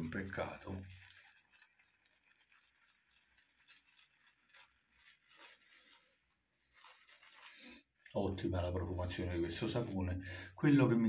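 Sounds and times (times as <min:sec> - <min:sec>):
shaving brush swishing in a bowl: 0:00.0 - 0:11.0.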